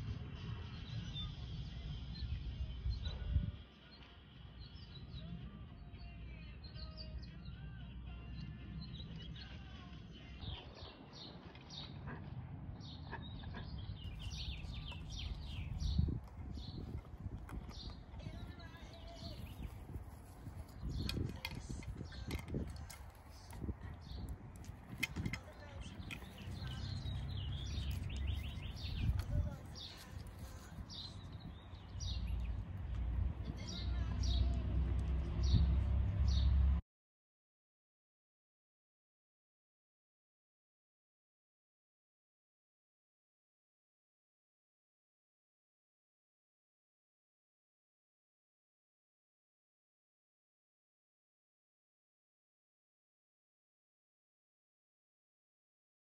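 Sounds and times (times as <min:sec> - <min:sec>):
steady low rumble: 0:12.0 - 0:36.2
small birds chirping: 0:12.8 - 0:36.6.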